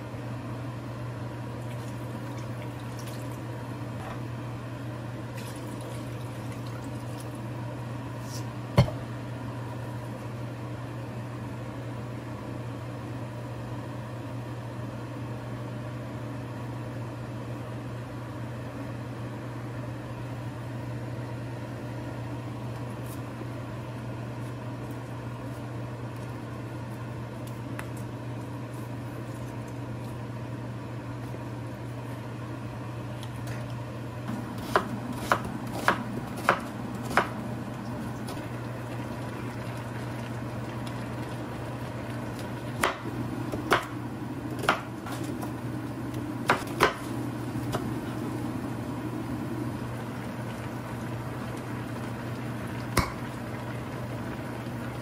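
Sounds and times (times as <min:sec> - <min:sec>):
steady low hum: 0:00.0 - 0:55.0
knife slicing onion on cutting board: 0:34.3 - 0:37.4, 0:42.8 - 0:44.0, 0:44.6 - 0:45.4, 0:46.4 - 0:47.8.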